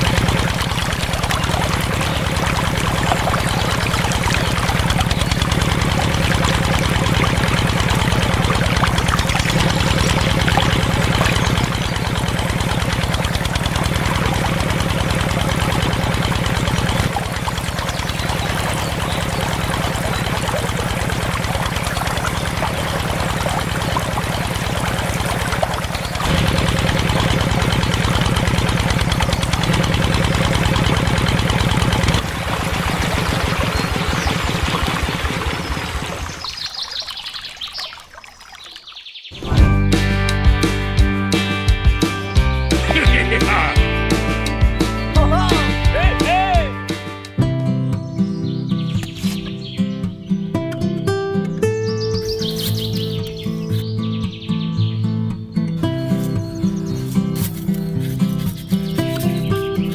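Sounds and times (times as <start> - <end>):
small diesel engine chugging: 0.0 - 36.5
water pouring and splashing: 0.0 - 39.2.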